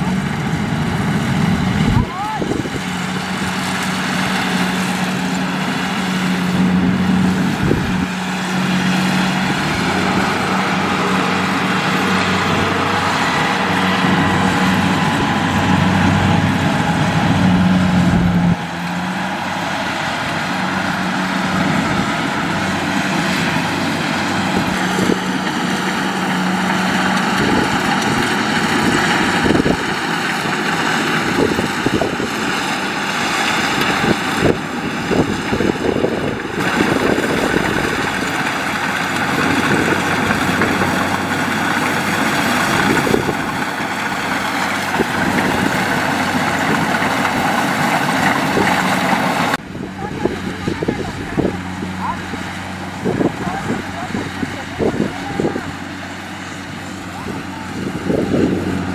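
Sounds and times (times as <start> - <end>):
diesel engine drone: 0.0 - 58.9.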